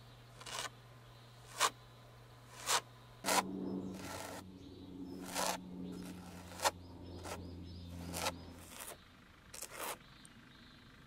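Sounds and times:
low steady hum: 0.0s - 11.0s
palette knife scraping canvas: 0.4s - 0.7s, 1.4s - 1.8s, 2.5s - 4.4s, 5.2s - 10.0s.

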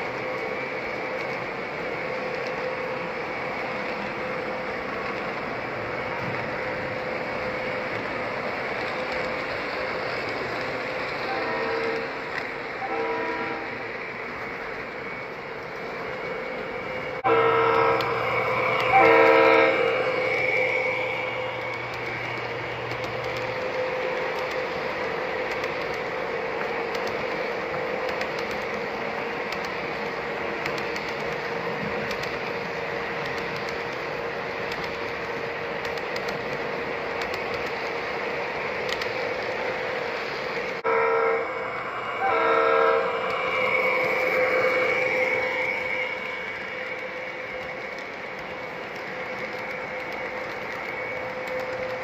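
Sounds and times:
model train rolling: 0.0s - 52.0s
model train horn blasts: 11.3s - 12.2s, 12.8s - 13.8s, 17.2s - 20.0s, 40.8s - 43.2s.

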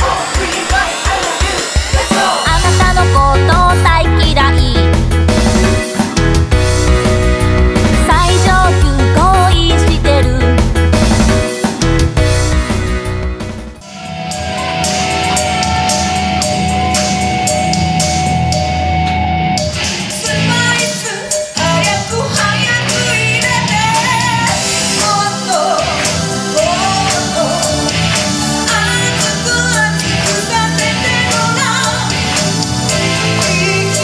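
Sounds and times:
pop-rock song with drums: 0.0s - 34.0s
woman singing: 2.0s - 4.8s, 8.0s - 10.6s, 20.2s - 27.9s, 28.6s - 34.0s.

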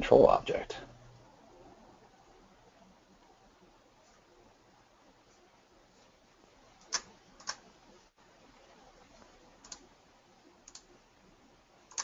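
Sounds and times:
computer mouse clicking: 6.8s - 7.6s, 9.6s - 9.9s, 10.6s - 10.9s.

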